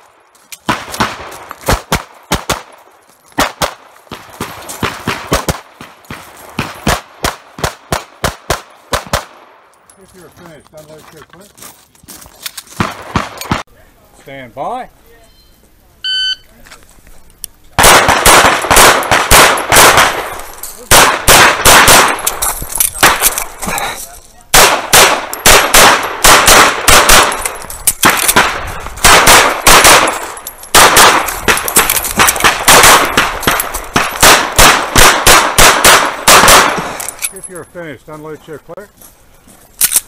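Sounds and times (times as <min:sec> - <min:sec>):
pistol shots: 0:00.6 - 0:09.6, 0:12.8 - 0:13.6, 0:17.8 - 0:23.6, 0:24.5 - 0:37.2.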